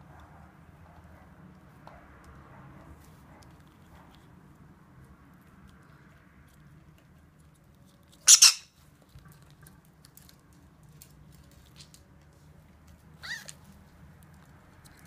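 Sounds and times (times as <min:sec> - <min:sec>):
parrot squawking: 0:08.2 - 0:08.7, 0:13.2 - 0:13.6.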